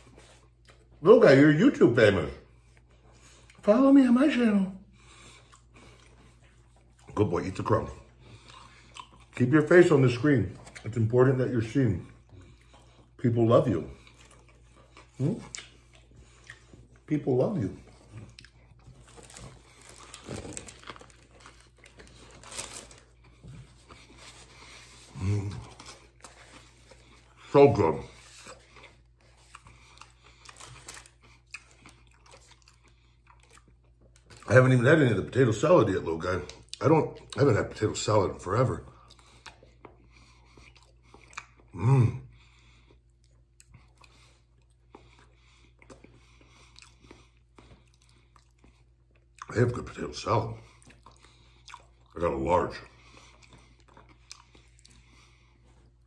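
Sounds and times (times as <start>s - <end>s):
person chewing food: 0.0s - 1.0s, 4.9s - 11.1s, 12.0s - 34.5s, 38.9s - 56.0s
paper wrapping crinkling: 18.9s - 23.3s, 30.4s - 31.2s.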